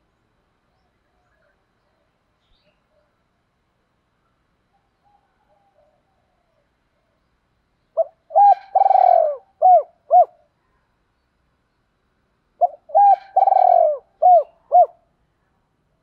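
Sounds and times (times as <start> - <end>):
dove cooing: 8.0 - 10.5, 12.6 - 15.1.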